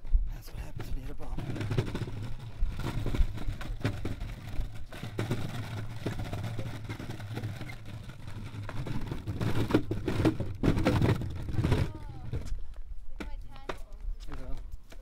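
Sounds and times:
longboard wheels rumbling on planks: 0.4s - 14.6s
wheels knocking over board gaps: 0.7s - 12.6s.

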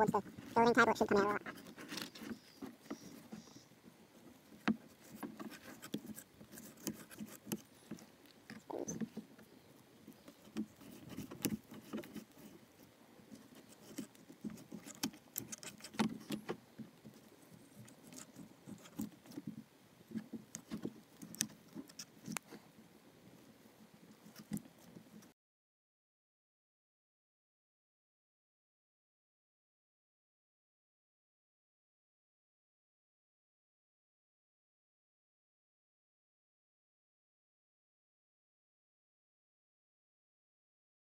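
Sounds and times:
knife scraping plastic cutting board: 4.8s - 8.0s, 13.4s - 16.6s.

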